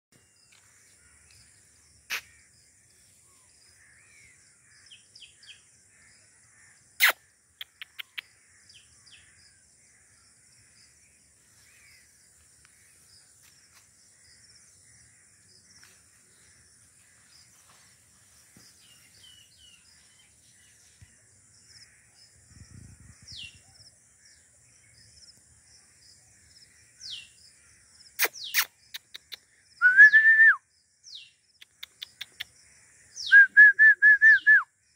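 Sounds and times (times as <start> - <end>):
bird calls: 0.2 - 25.1, 26.4 - 30.2, 31.1 - 33.6
sharp clicks: 7.0 - 8.3, 31.6 - 32.5
short falling whistles: 29.8 - 30.6.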